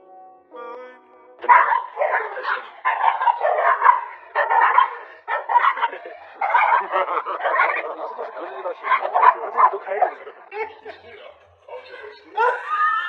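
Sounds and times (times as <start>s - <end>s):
small dogs barking: 1.4s - 10.7s.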